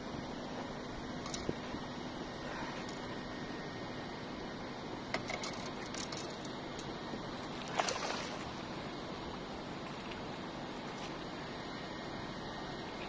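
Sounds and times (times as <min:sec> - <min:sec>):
fish splashing into water: 0:07.6 - 0:08.6.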